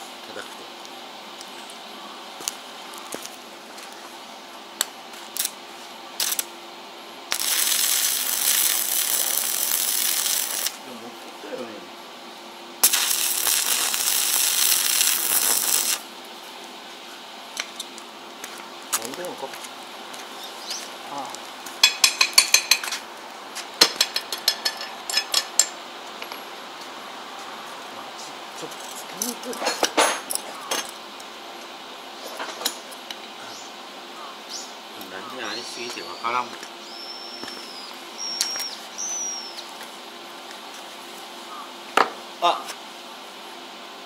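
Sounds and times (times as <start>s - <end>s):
welding arc crackling hiss: 4.7s - 6.6s, 7.2s - 11.8s, 12.8s - 25.8s.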